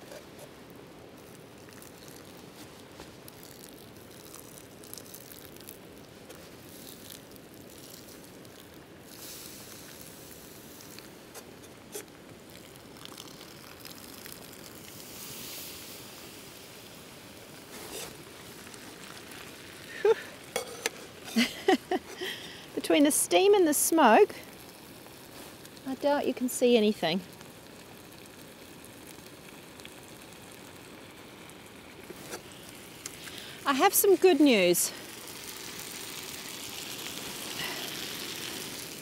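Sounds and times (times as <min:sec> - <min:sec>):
fire pops: 0:00.0 - 0:16.0, 0:17.4 - 0:22.8, 0:27.2 - 0:33.9
campfire crackling: 0:00.0 - 0:39.0
faint steady hiss: 0:00.0 - 0:39.0.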